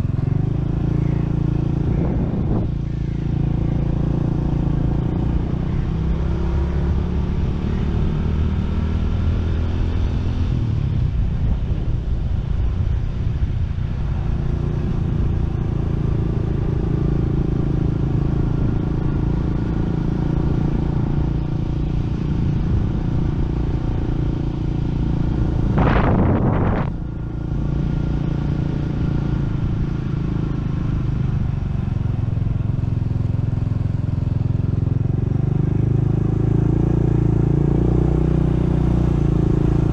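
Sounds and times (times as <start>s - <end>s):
wind noise on microphone: 0.0s - 5.5s, 8.3s - 32.4s
motorcycle engine running: 0.0s - 39.9s
loud rush of noise: 25.6s - 27.2s.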